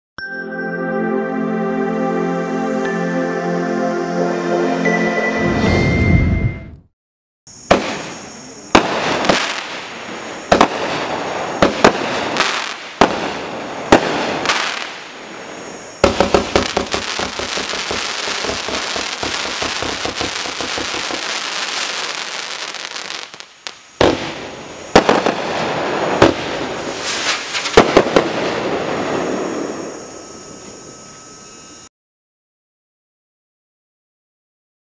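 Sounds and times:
fireworks shots firing: 0:07.6 - 0:29.9
fireworks crackling: 0:07.6 - 0:30.4.

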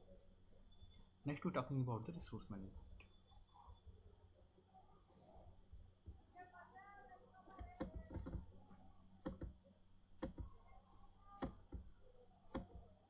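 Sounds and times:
low electrical hum: 0:00.0 - 0:13.0
computer mouse clicking: 0:07.6 - 0:08.4, 0:09.2 - 0:09.6, 0:10.2 - 0:10.5, 0:12.5 - 0:12.8.

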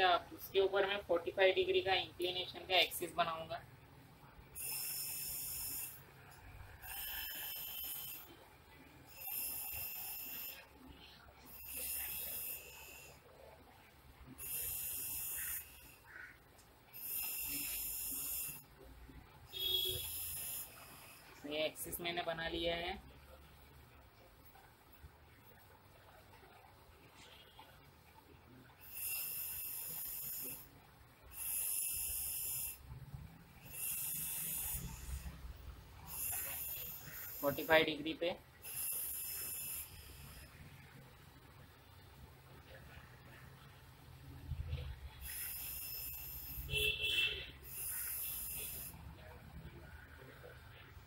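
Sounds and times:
hissy breathing: 0:04.5 - 0:08.4, 0:09.1 - 0:13.4, 0:14.3 - 0:16.2, 0:16.9 - 0:18.8, 0:19.6 - 0:21.5, 0:28.8 - 0:37.9, 0:38.6 - 0:41.0, 0:45.2 - 0:50.6.

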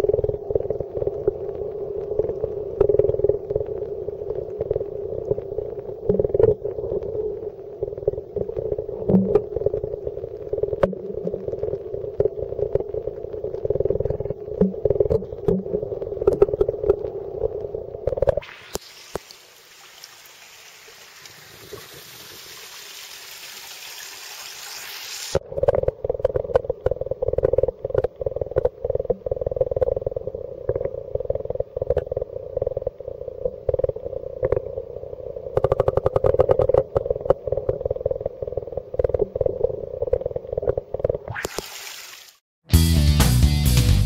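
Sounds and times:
muffled underwater hum: 0:00.0 - 0:18.7, 0:25.4 - 0:41.3
open-air hiss: 0:18.4 - 0:25.4.

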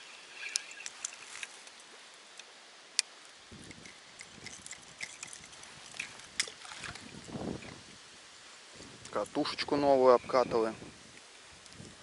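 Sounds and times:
wind gusting on microphone: 0:03.4 - 0:12.0.

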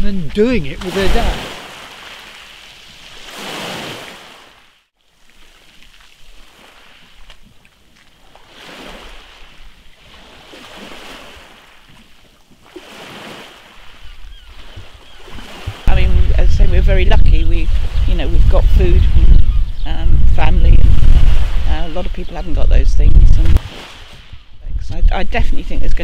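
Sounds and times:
waves lapping on shingle beach: 0:00.4 - 0:16.2, 0:23.4 - 0:24.3.

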